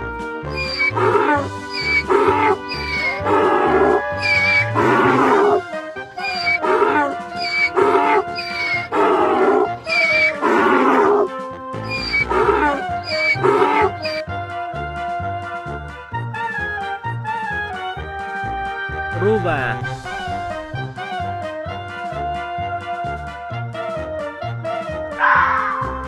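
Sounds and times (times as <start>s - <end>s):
donkey braying: 0.5s - 14.4s, 19.1s - 21.4s, 25.1s - 26.0s.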